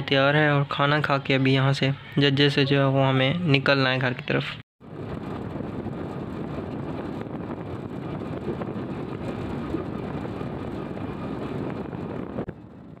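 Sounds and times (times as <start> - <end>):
motorcycle riding: 4.8 - 13.0
wind buffeting microphone: 4.8 - 13.0.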